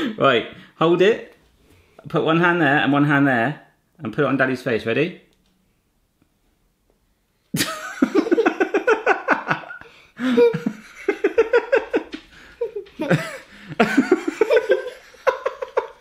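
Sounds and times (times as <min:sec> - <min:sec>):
girl laughing: 0:07.6 - 0:16.0
man laughing: 0:07.6 - 0:16.0.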